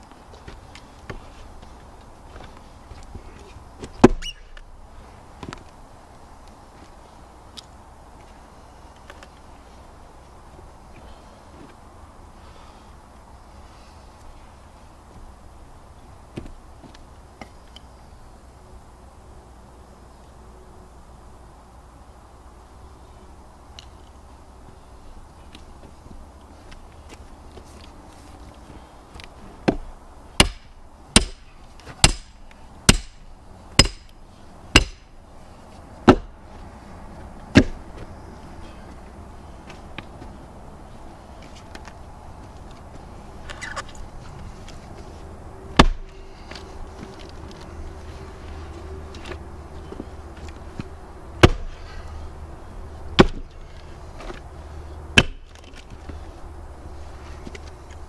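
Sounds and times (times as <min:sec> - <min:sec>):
axe chopping firewood: 0:03.9 - 0:04.4, 0:29.6 - 0:35.1, 0:36.0 - 0:36.4, 0:37.5 - 0:37.8, 0:45.8 - 0:46.1, 0:50.8 - 0:51.8, 0:53.1 - 0:53.6, 0:55.1 - 0:55.8
sledgehammer striking steel wedge: 0:30.4 - 0:33.2, 0:33.8 - 0:34.1, 0:34.7 - 0:35.1, 0:45.8 - 0:46.1, 0:51.4 - 0:51.7, 0:55.2 - 0:55.5.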